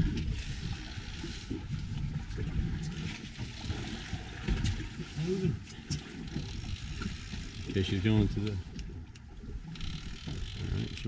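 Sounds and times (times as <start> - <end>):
wind on microphone: 0.0 - 5.6
water noise: 0.0 - 11.0
faint clicks: 8.4 - 11.0.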